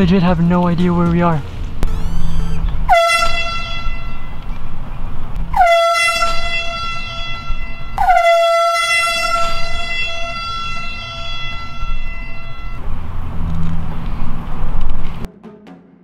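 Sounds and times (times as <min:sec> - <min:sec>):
air horn blasts: 0:01.8 - 0:04.4, 0:05.5 - 0:13.0.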